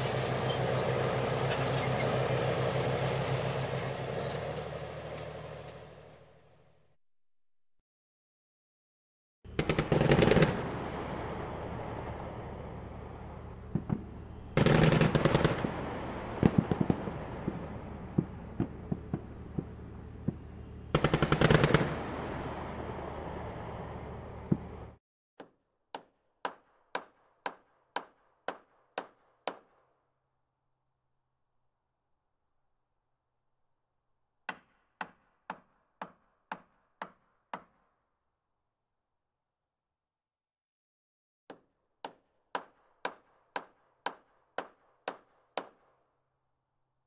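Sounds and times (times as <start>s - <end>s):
machine-gun fire: 9.5s - 12.1s, 13.7s - 22.6s.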